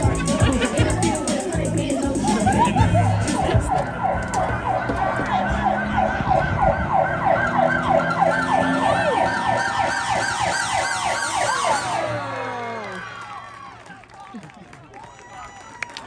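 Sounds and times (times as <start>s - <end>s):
siren yelping wails: 3.4s - 13.0s.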